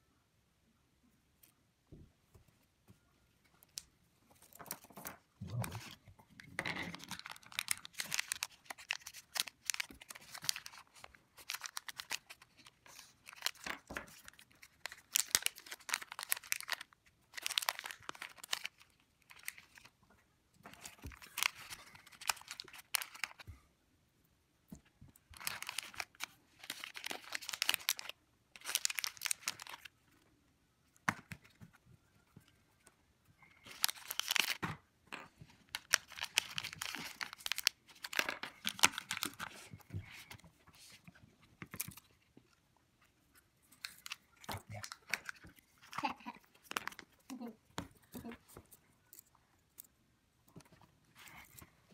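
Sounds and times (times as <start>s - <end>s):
plastic pouches crinkling: 6.6s - 20.0s, 20.7s - 23.4s, 25.3s - 30.0s, 33.4s - 34.7s, 35.6s - 41.0s, 43.8s - 49.9s.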